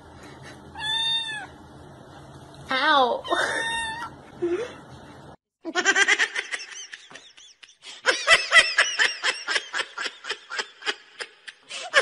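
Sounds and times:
person laughing: 0:03.3 - 0:03.8, 0:05.7 - 0:12.0.

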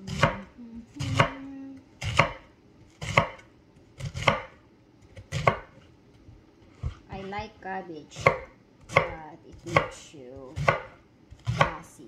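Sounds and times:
knife slicing cabbage on board: 0:00.0 - 0:01.4, 0:02.0 - 0:05.8, 0:08.2 - 0:11.9.

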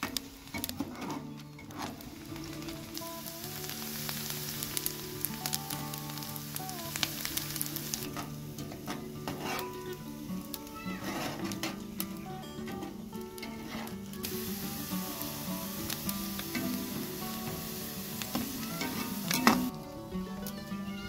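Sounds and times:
onions sizzling in oil: 0:01.9 - 0:19.7
metal skimmer scraping pan: 0:08.1 - 0:09.9.

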